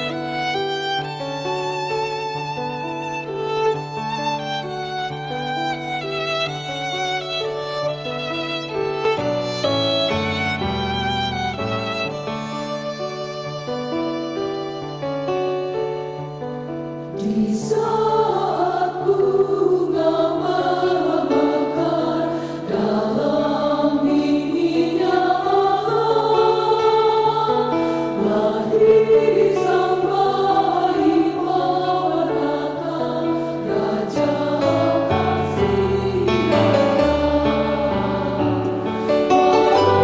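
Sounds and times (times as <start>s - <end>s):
mixed choir singing a hymn: 0.0s - 11.4s, 17.2s - 40.0s
instrumental accompaniment: 20.5s - 40.0s.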